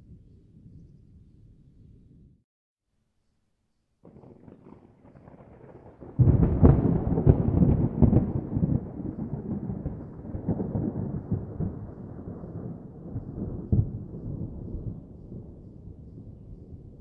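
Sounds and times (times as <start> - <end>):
loud crackling rumble: 4.1 - 17.0.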